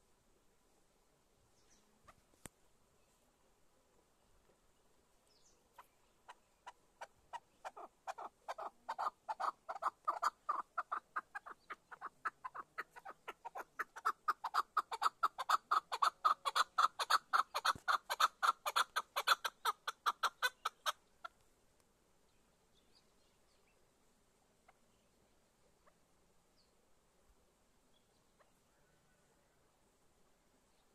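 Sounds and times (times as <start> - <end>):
partridge clucking call: 5.8 - 21.4.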